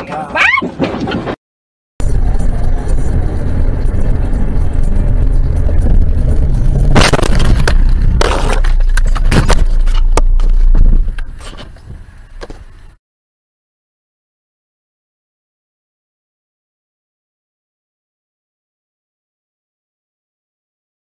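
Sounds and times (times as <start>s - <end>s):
knocks and rattles: 0.0s - 1.4s, 4.1s - 12.7s
car road and engine rumble: 2.0s - 13.0s
car collision crash: 6.9s - 10.0s.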